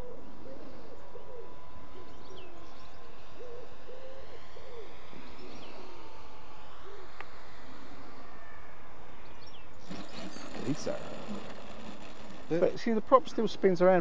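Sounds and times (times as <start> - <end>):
bird hooting: 0.0 - 12.6.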